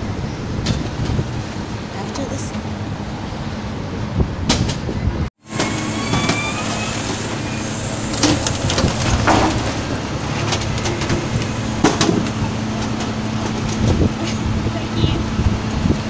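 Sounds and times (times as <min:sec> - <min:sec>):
garbage truck engine running: 0:04.4 - 0:16.0.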